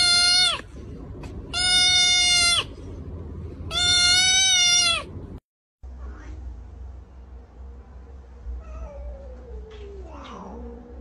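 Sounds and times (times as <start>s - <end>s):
kitten crying: 0.0s - 0.7s, 1.5s - 2.8s, 3.7s - 5.1s.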